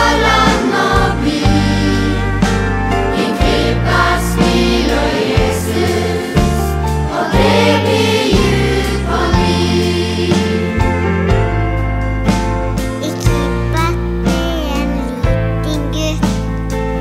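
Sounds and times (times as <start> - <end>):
choir singing in unison: 0.0 - 11.2
band playing: 0.0 - 16.9
steady bass notes: 0.0 - 17.0.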